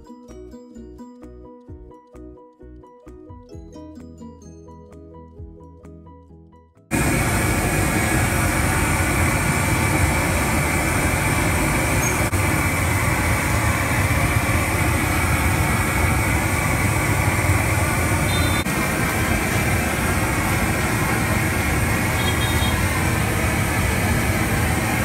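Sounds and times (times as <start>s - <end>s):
soft music: 0.0s - 6.9s
gas torch hissing: 6.9s - 25.0s.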